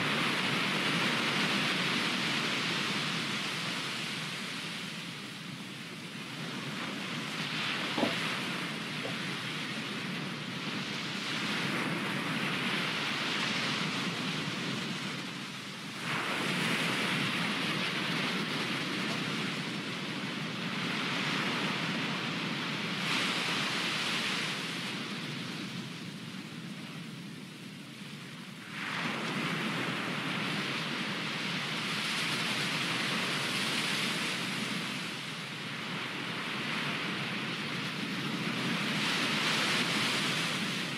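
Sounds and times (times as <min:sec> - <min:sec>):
ocean waves breaking on shore: 0:00.0 - 0:40.9
wave breaking: 0:06.6 - 0:12.3.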